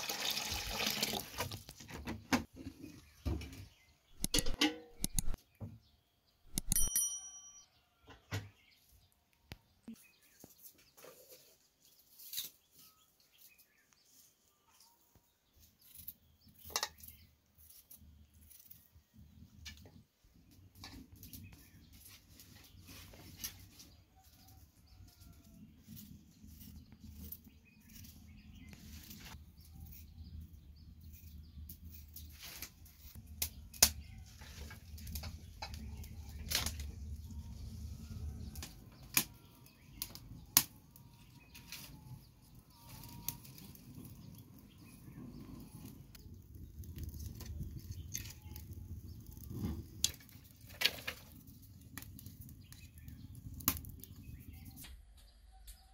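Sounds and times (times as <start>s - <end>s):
sticks snapping: 4.2s - 5.4s.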